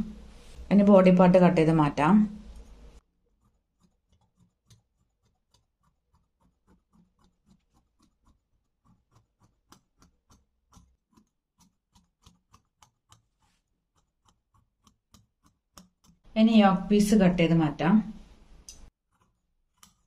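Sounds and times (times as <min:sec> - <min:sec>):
scissors snipping fabric: 0:03.4 - 0:16.2, 0:19.1 - 0:20.0.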